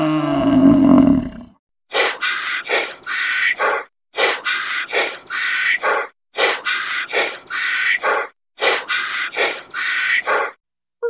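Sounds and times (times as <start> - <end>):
hoarse raspy animal call: 2.0 - 10.6.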